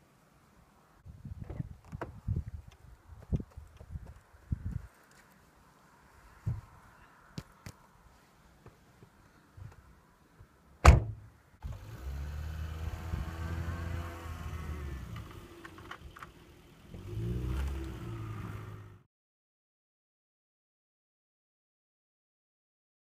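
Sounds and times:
car door slamming: 10.8 - 11.2
car engine revving: 11.6 - 15.8, 16.4 - 19.0.

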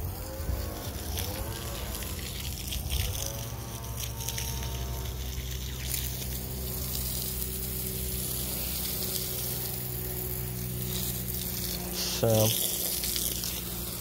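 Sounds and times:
low machine hum: 0.0 - 14.0.

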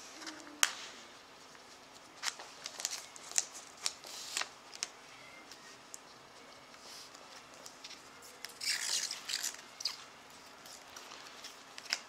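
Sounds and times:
wrapper crinkling: 2.2 - 6.0.

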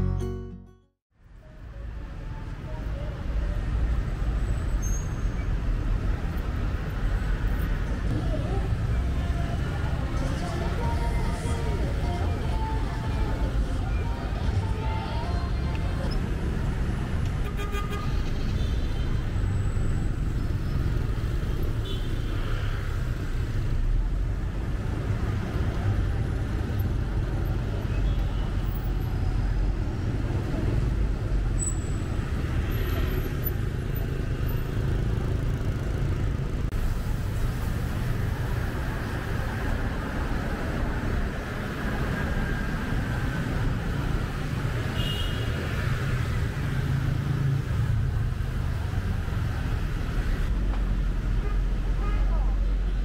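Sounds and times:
traffic rumble: 1.2 - 53.0
people's voices: 8.1 - 16.3.

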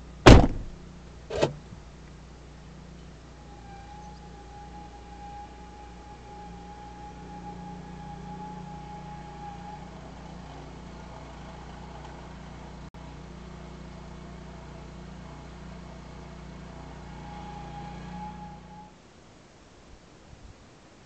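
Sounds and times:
thin steady whine: 0.0 - 12.6
car engine idling: 0.0 - 18.9.

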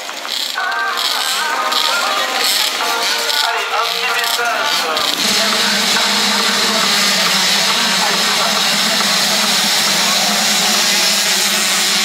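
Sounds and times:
motocross bikes at full throttle: 0.0 - 12.0.

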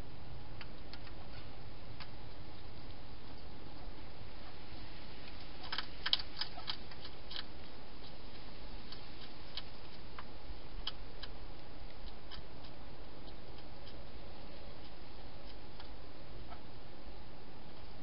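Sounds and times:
hedgehog crunching dry food: 5.2 - 16.0.

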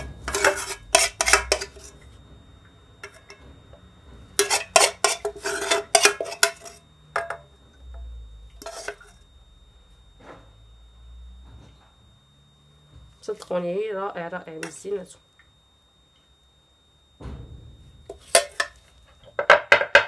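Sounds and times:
metal spoon scraping metal pot: 0.0 - 2.1, 4.4 - 7.4, 8.6 - 9.2, 18.1 - 18.8.

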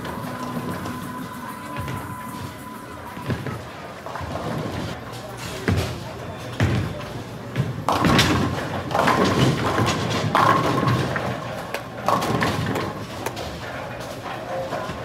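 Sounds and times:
bowling balls rolling on lanes: 0.0 - 15.0
bowling pins crashing: 7.9 - 15.0.

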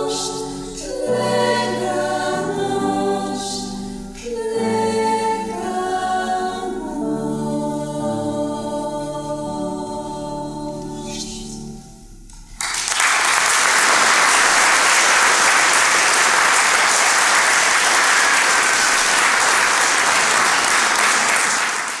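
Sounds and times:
audience applause: 12.6 - 22.0.

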